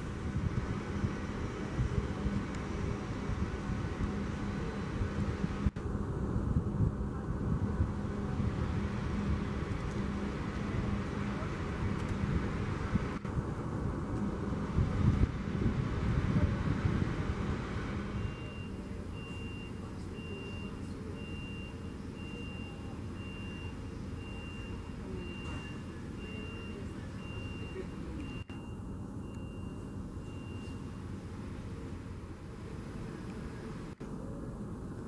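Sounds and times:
vehicle reversing alarm beeping: 0:17.7 - 0:31.9.

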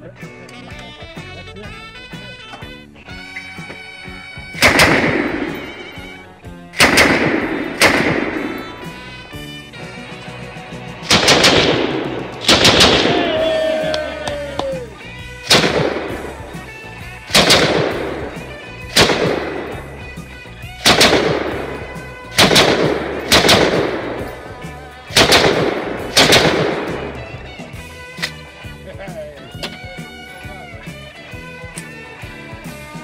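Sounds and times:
rifle shots with echo: 0:04.6 - 0:06.1, 0:06.8 - 0:09.0, 0:11.0 - 0:13.5, 0:15.4 - 0:27.4.

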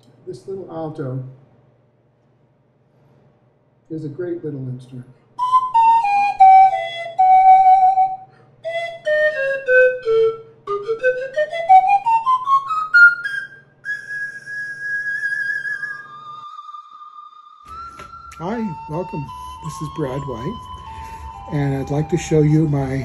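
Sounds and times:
pan flute melody: 0:05.4 - 0:23.0.

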